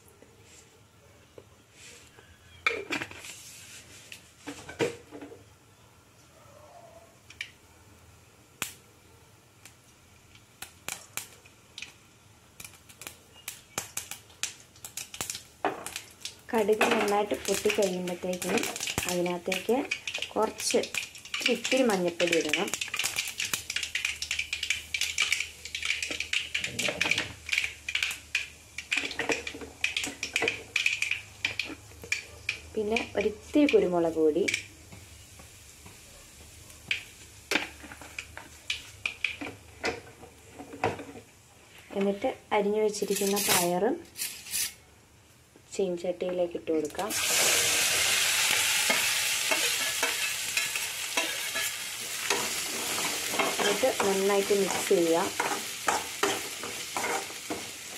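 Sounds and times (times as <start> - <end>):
mustard seeds popping in oil: 8.6 - 8.8, 9.6 - 40.5, 46.3 - 57.9
oil sizzling: 9.5 - 42.2, 46.6 - 57.9.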